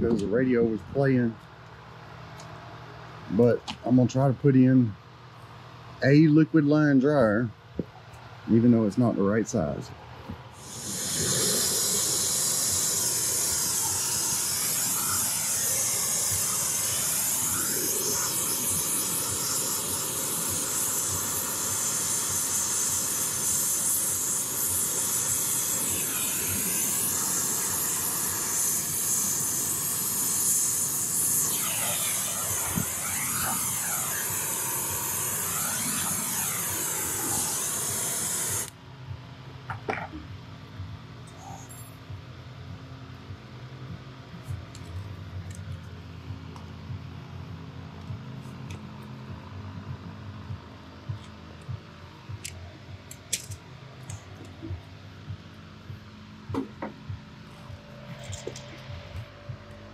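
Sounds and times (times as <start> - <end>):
torch flame hissing: 10.5 - 38.8.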